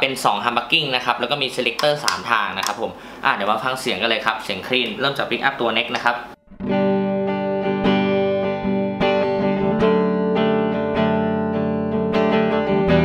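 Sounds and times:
clean electric guitar: 6.4s - 13.0s.

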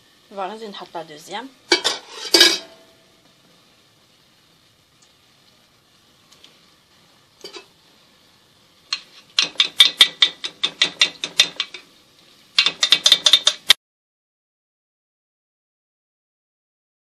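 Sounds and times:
metal spoon clicking on pot: 8.9s - 11.8s, 12.6s - 13.8s.

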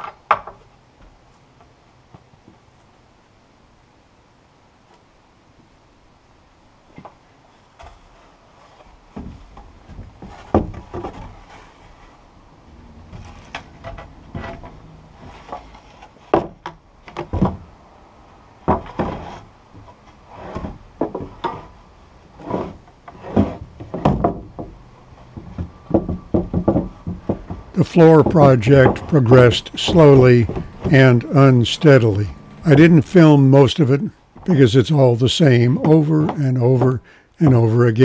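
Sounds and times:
wooden floorboards knocking: 25.4s - 33.0s.

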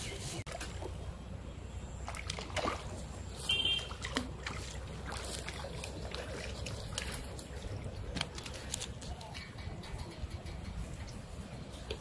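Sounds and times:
fish splashing in water: 1.9s - 8.9s.

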